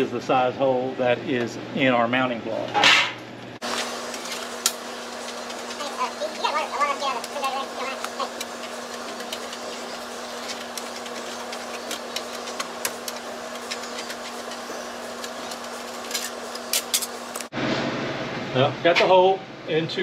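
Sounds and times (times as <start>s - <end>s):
steady background hum: 0.0s - 20.0s
tin snips cutting metal: 8.0s - 17.5s.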